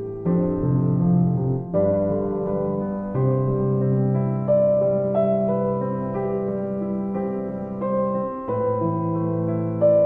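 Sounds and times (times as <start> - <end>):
piano music with held notes: 0.0 - 10.0.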